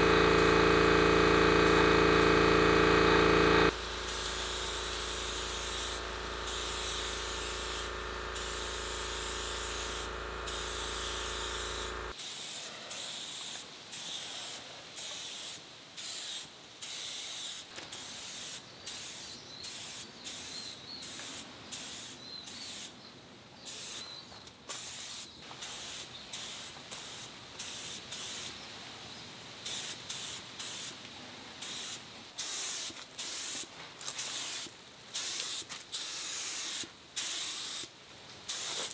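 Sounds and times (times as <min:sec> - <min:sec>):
air compressor motor hum: 0:00.0 - 0:12.2
spray gun hissing: 0:00.0 - 0:22.9, 0:24.7 - 0:28.5, 0:29.6 - 0:31.0, 0:31.6 - 0:37.9, 0:38.5 - 0:38.9.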